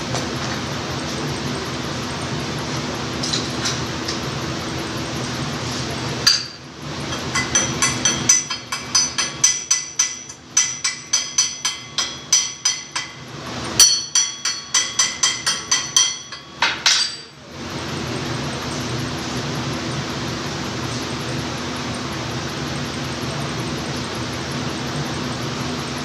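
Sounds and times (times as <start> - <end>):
hammer tapping steel: 6.2 - 13.2, 13.8 - 17.3.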